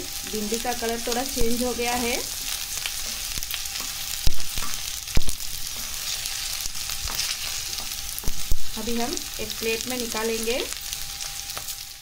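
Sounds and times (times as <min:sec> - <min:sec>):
okra sizzling in hot oil: 0:00.0 - 0:12.0
spatula scraping and tapping pan: 0:07.0 - 0:08.4.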